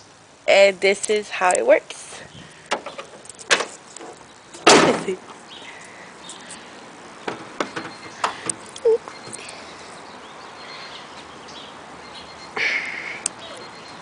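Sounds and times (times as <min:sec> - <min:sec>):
car hood slamming shut: 0:04.6 - 0:05.2.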